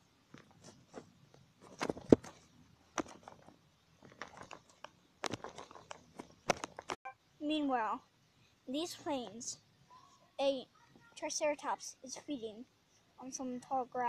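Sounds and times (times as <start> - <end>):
dry grass rustling and crackling: 1.6 - 7.0.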